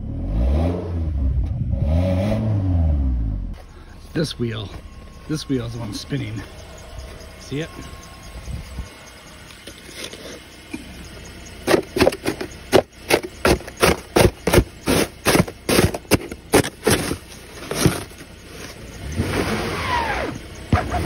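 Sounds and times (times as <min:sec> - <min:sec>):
snow brush scraping ice: 0:09.6 - 0:10.6, 0:11.6 - 0:21.0.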